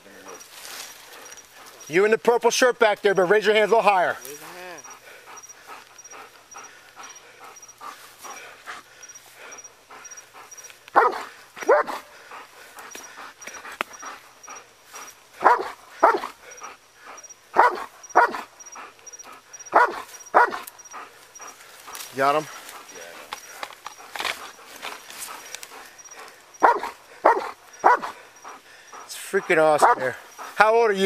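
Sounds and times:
dog barking: 10.9 - 12.1, 15.4 - 16.4, 17.5 - 18.5, 19.7 - 20.7, 26.6 - 28.2, 29.5 - 30.2.

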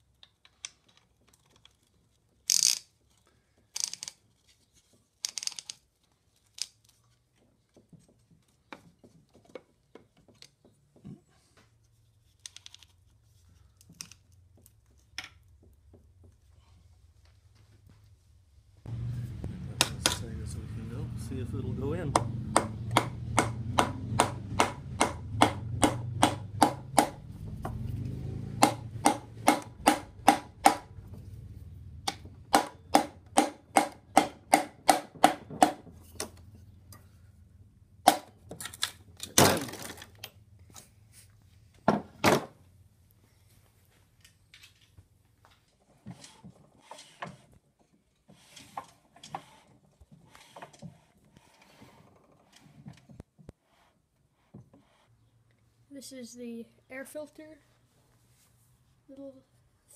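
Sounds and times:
wooden handle knocking piston: 22.1 - 27.8, 28.6 - 30.9.

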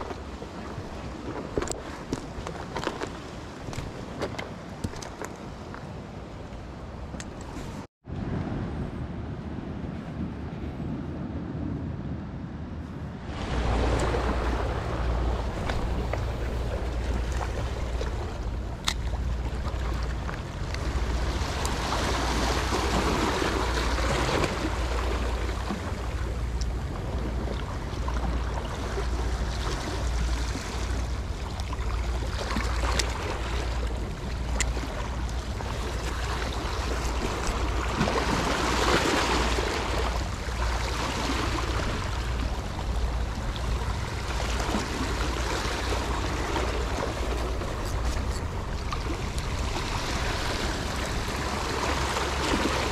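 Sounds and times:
sea water washing and surging: 0.0 - 52.9
wind rumble on microphone: 0.0 - 52.9.

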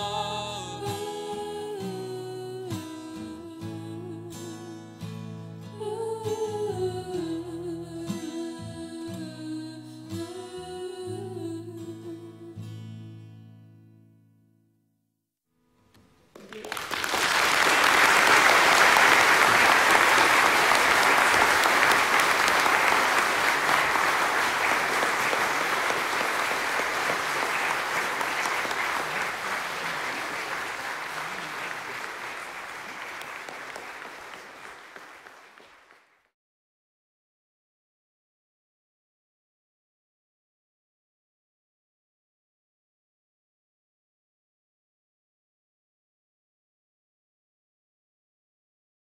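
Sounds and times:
audience applauding: 16.3 - 36.3.

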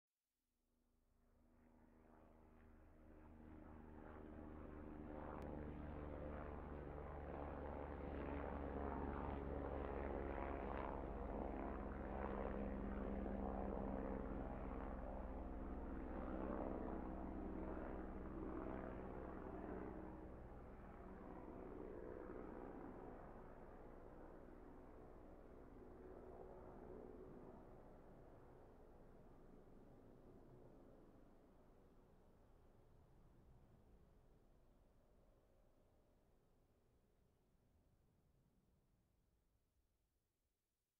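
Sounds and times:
helicopter engine and rotor drone: 1.6 - 31.2.

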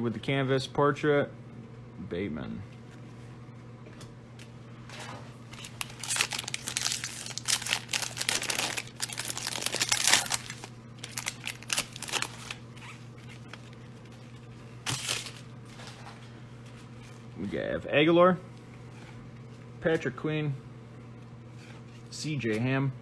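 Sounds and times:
plastic wrapper crinkling: 5.5 - 15.5.

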